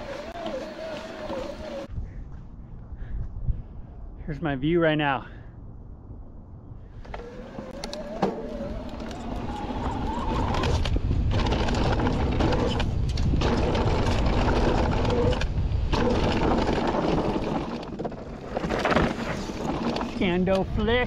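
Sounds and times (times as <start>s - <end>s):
bike rattling over bumps: 0.0s - 1.9s, 7.0s - 21.0s
tyres crunching over dirt: 0.0s - 1.9s
wind rushing over microphone: 0.0s - 21.0s
thin motor whine: 7.0s - 12.8s.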